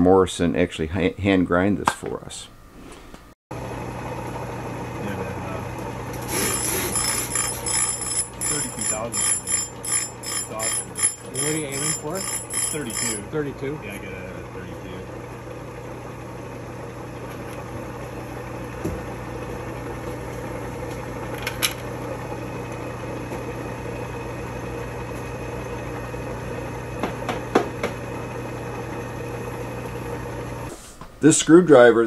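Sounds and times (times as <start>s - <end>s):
grinder motor humming: 3.6s - 30.7s.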